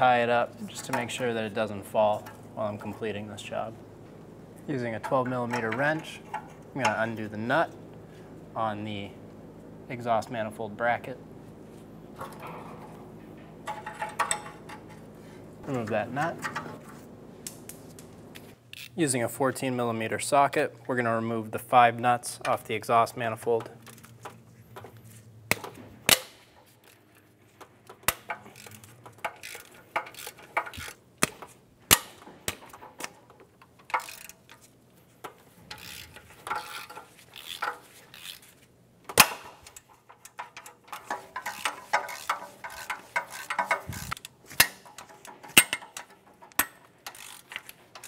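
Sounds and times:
ratchet clicking: 28.1s - 31.0s, 32.5s - 38.6s, 39.5s - 48.0s.

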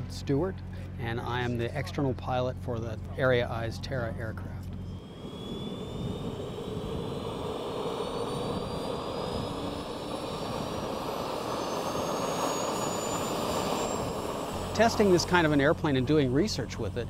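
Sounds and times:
turbojet whine rising in pitch: 0.0s - 17.0s
rushing jet noise: 4.9s - 17.0s.

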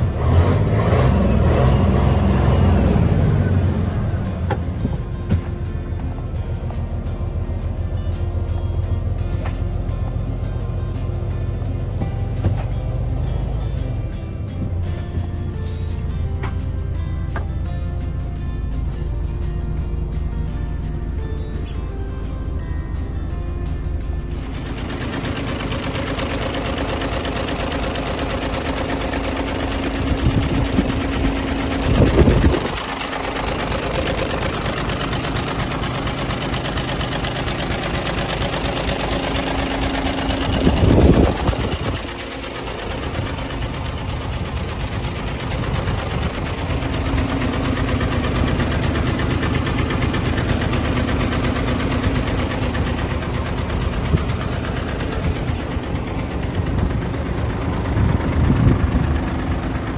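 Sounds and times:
diesel truck engine idling: 0.0s - 59.9s.

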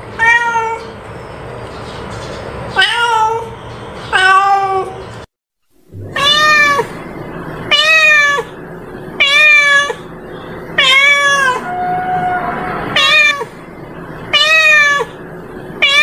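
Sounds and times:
cat meowing: 0.2s - 0.9s, 6.2s - 6.9s, 7.7s - 8.5s, 9.2s - 10.0s, 10.8s - 13.5s, 14.3s - 15.2s, 15.8s - 16.0s.

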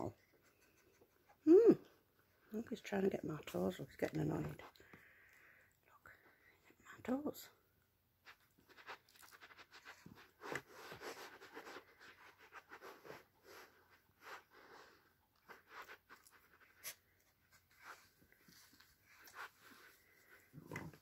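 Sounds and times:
puppy panting: 0.1s - 1.5s
puppy scratching and scuffling: 8.2s - 21.0s.

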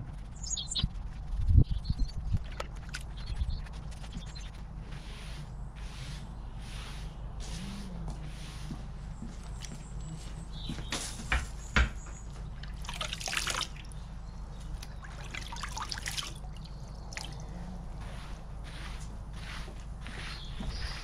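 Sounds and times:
liquid splashing: 12.6s - 14.0s, 14.8s - 17.4s
liquid trickling and dripping: 12.6s - 17.4s.

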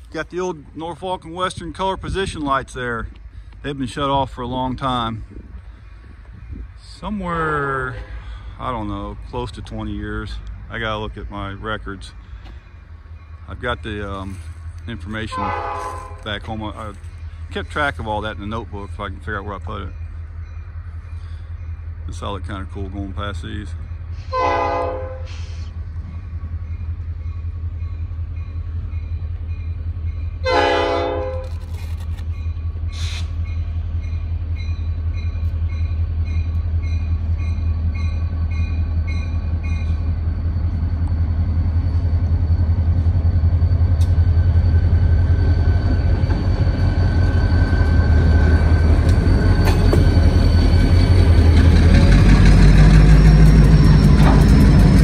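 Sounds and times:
freight train rumble: 0.0s - 55.0s
locomotive horn blasts: 15.2s - 16.3s, 24.3s - 25.5s, 30.4s - 31.5s.

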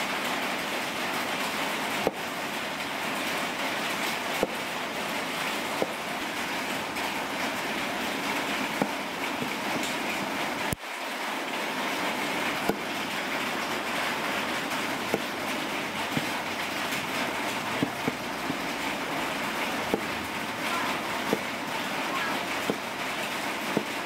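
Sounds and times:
blade knocking on wooden board: 4.4s - 4.6s, 5.8s - 6.0s, 8.8s - 9.6s, 12.7s - 13.0s, 15.1s - 15.3s, 16.1s - 17.2s, 17.8s - 18.8s, 19.7s - 20.2s, 21.2s - 21.5s, 22.6s - 22.9s, 23.7s - 24.0s
cleaver shaving broccoli stalk: 13.6s - 24.0s.

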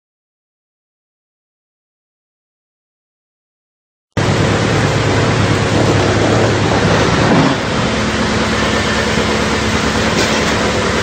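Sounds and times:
wood chipper running: 4.2s - 11.0s.

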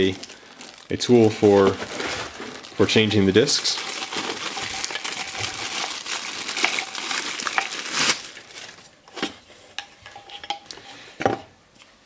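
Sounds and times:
plastic bag crinkling: 0.0s - 9.3s.

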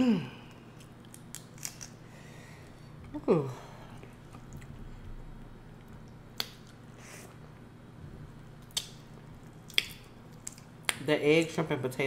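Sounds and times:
shrimp shell cracking: 0.8s - 2.0s.

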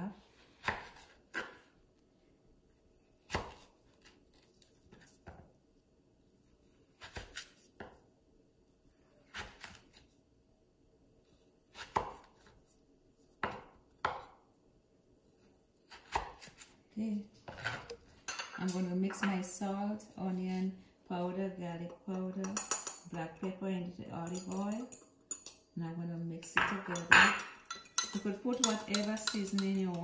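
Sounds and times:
knife cutting potato: 0.4s - 1.7s, 3.2s - 5.3s, 6.8s - 8.0s, 8.9s - 10.1s, 11.6s - 12.6s, 15.8s - 16.8s.

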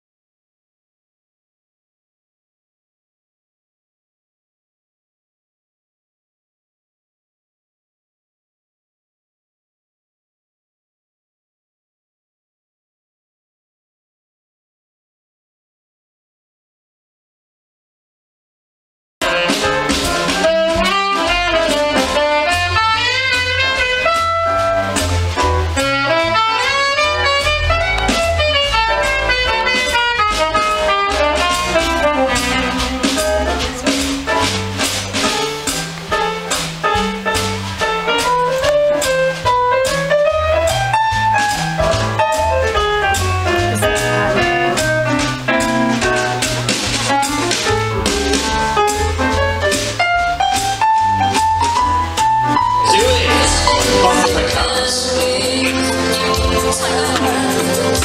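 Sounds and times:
saxophone melody: 19.2s - 35.6s, 52.8s - 58.0s
double bass: 19.2s - 58.0s
drums: 19.2s - 58.0s
melodic lead line: 52.8s - 58.0s.

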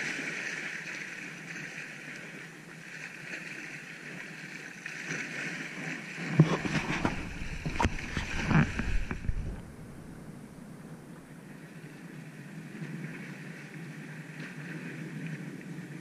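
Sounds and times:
sea water lapping on rocks: 0.0s - 16.0s
low rumble: 6.6s - 12.0s.

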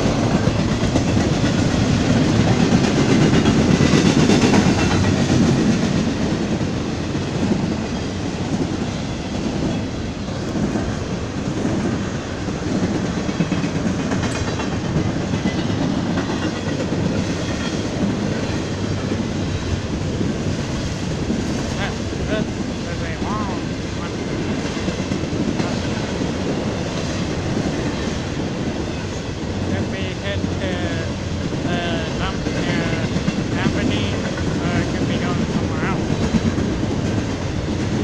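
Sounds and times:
freight train wheels rumbling: 0.0s - 38.0s.

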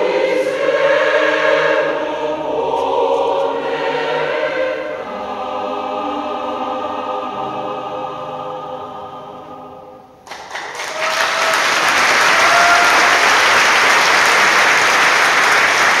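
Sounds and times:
choir holding a chord: 0.0s - 10.2s
audience applause: 10.2s - 16.0s.

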